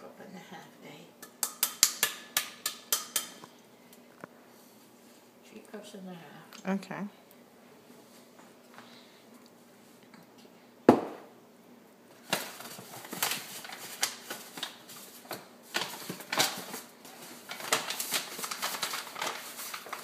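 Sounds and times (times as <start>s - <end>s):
knock on countertop: 10.9s - 11.3s
paperboard carton crinkling: 12.2s - 20.0s.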